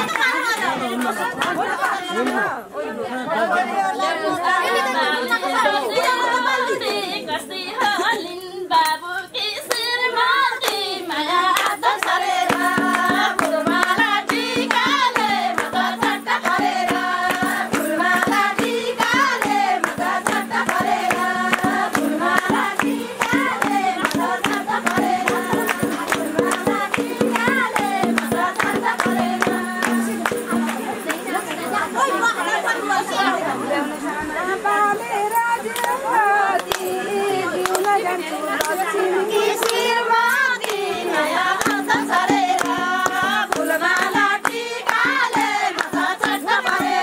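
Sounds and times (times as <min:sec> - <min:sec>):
rhythmic hand-clapping: 0:00.0 - 0:02.6, 0:04.7 - 0:07.3, 0:08.8 - 0:32.4, 0:35.3 - 0:47.0
women singing folk song: 0:00.0 - 0:47.0.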